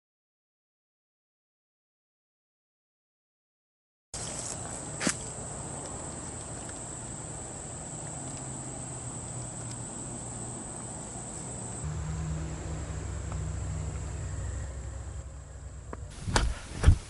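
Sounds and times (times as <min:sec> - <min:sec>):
insects droning: 0:04.2 - 0:17.0
low rumble: 0:11.8 - 0:16.7
loud thumps: 0:15.0 - 0:17.0.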